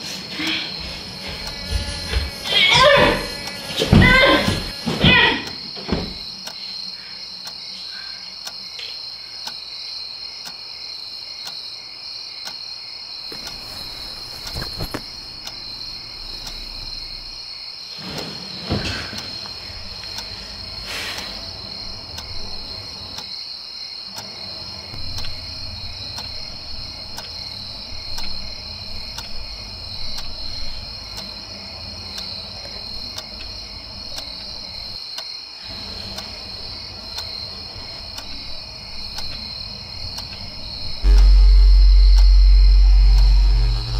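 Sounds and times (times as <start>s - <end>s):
crickets trilling: 0.0s - 43.9s
faint ticking: 0.8s - 4.8s, 13.3s - 17.5s, 19.1s - 23.3s, 24.1s - 43.9s.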